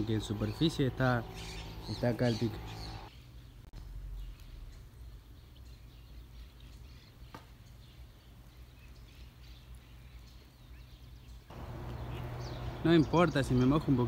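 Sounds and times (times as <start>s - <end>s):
small birds chirping: 0.0s - 14.0s
low outdoor rumble: 11.5s - 14.0s.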